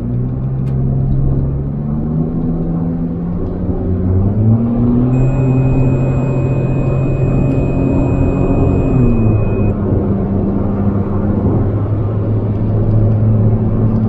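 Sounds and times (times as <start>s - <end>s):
car engine from inside cabin: 5.1s - 9.7s.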